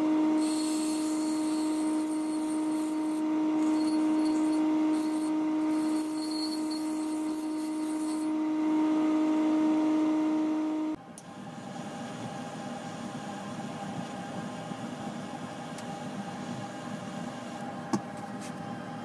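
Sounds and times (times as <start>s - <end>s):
bench grinder humming: 0.0s - 11.0s
steel blade grinding hiss: 0.4s - 8.3s.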